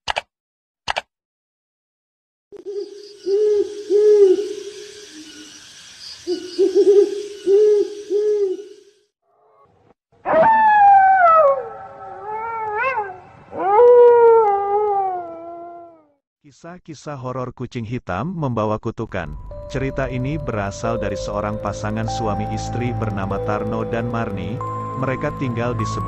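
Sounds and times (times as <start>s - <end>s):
high hissing background: 2.6s - 8.9s, 19.5s - 26.0s
owl hooting: 2.6s - 8.9s
wavering howl falling in pitch: 10.3s - 16.1s.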